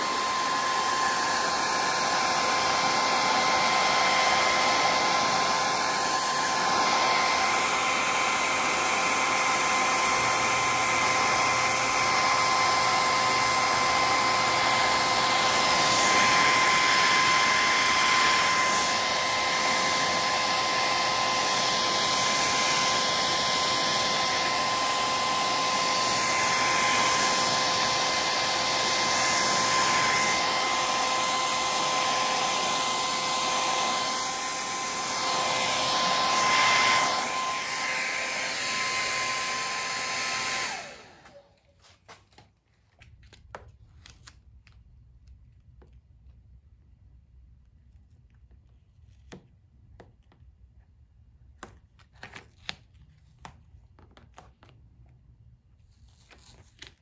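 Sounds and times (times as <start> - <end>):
heat gun blowing air: 0.0 - 41.6.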